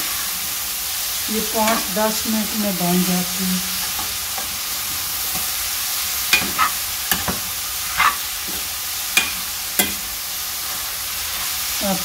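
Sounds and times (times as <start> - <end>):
food sizzling in a metal pot: 0.0 - 12.0
spoon scraping a metal pot: 6.4 - 8.6.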